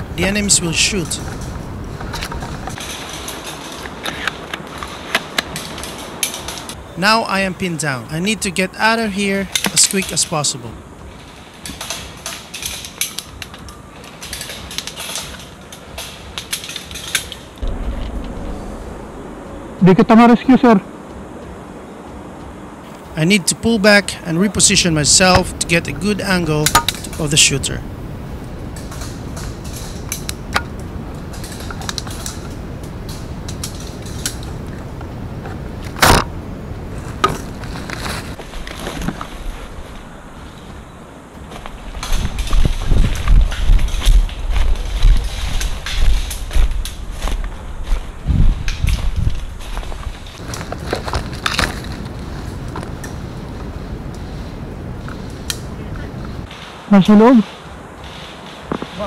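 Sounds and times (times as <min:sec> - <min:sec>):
sharp clicks and crackles: 0:00.9 - 0:06.8, 0:11.2 - 0:19.0, 0:28.7 - 0:36.3, 0:41.4 - 0:48.0
twigs snapping: 0:11.1 - 0:18.2, 0:41.4 - 0:53.2.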